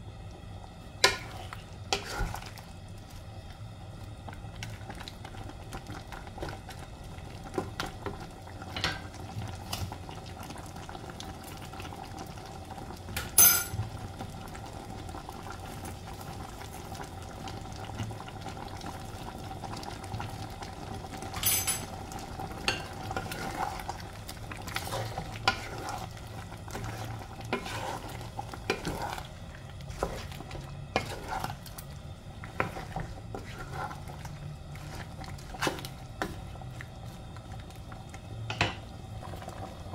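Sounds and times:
sauce bubbling and sizzling: 0.0 - 39.9
wooden spatula scraping pan: 1.0 - 2.5, 24.7 - 29.3, 29.9 - 31.7, 32.5 - 36.4.

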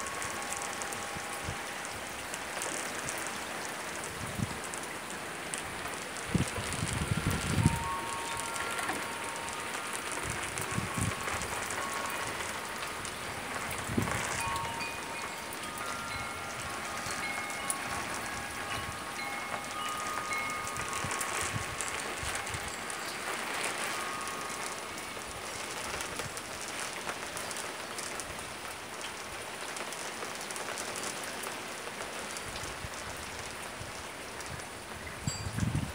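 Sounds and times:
metal wind chimes ringing: 0.0 - 4.0, 5.4 - 27.8, 35.2 - 35.9
rain on a wooden deck: 0.0 - 35.9.

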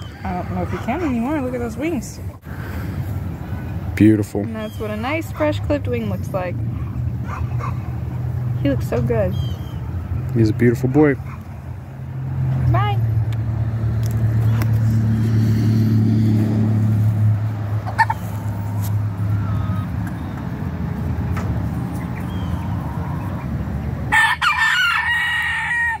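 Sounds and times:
rooster crowing: 24.1 - 26.0.

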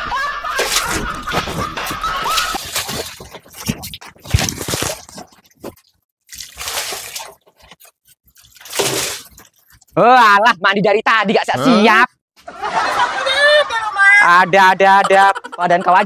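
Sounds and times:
water splashing on concrete: 0.5 - 9.8.

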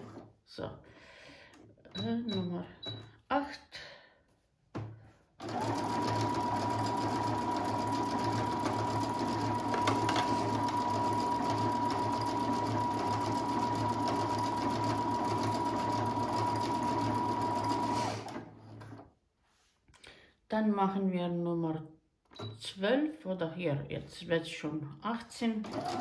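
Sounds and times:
sewing machine running: 5.4 - 19.0, 25.6 - 26.0.

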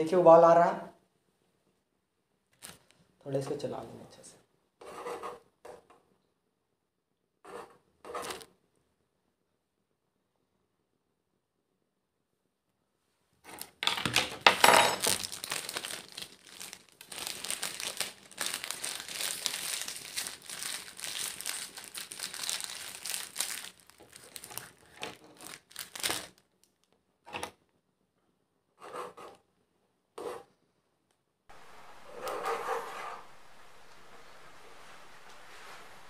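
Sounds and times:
plastic wrapper crinkling: 2.5 - 3.0, 14.9 - 27.0.

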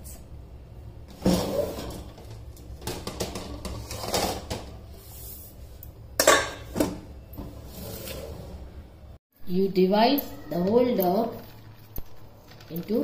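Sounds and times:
plate clattering on metal bowl: 6.2 - 6.8.

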